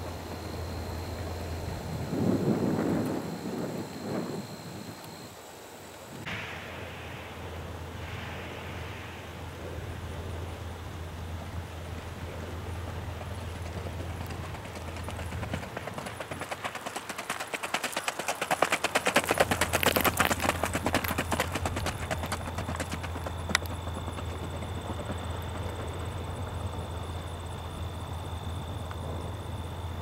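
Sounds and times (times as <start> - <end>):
horse hoofbeats on gravel: 12.3 - 27.6.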